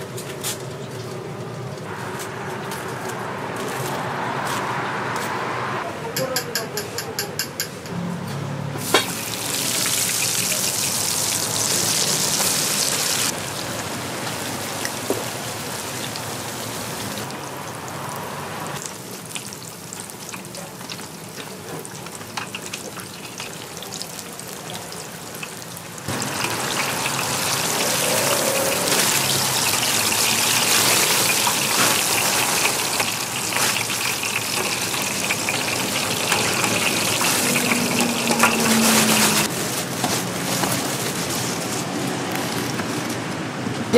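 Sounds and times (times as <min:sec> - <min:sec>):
dough deep-frying in hot oil: 0:08.8 - 0:18.0, 0:18.7 - 0:43.2.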